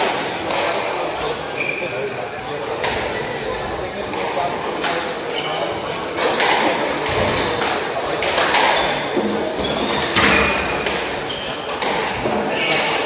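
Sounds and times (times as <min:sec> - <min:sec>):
shoes squeaking on wooden floor: 0:00.6 - 0:02.1, 0:05.3 - 0:07.6, 0:08.6 - 0:13.0
squash ball smacking rackets and walls: 0:06.0 - 0:13.0.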